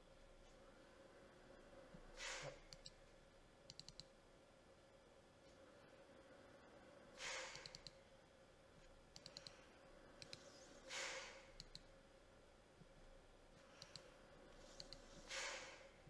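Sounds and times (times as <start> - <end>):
computer mouse clicks: 2.7 - 3.0, 3.7 - 4.1, 7.2 - 8.0, 9.1 - 9.6, 10.2 - 11.9, 13.7 - 15.6.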